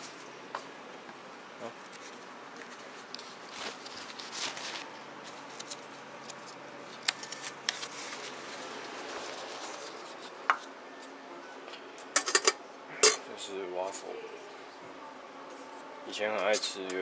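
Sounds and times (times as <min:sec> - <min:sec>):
paper plates rustling: 0:01.6 - 0:11.2.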